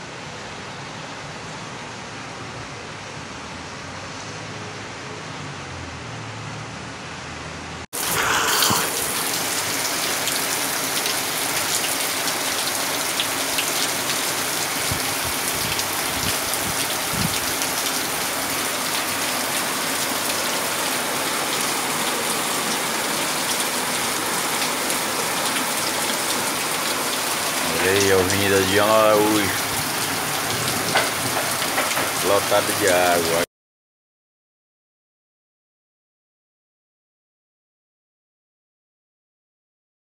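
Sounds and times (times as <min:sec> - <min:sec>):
floodwater running: 0:08.0 - 0:33.5
heavy rain falling: 0:08.0 - 0:33.5.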